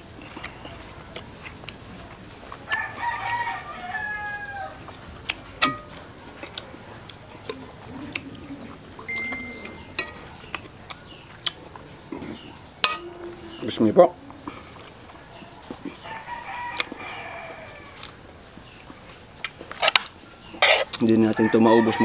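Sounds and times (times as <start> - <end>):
rooster crowing: 2.7 - 4.9, 16.0 - 18.2, 21.3 - 22.0.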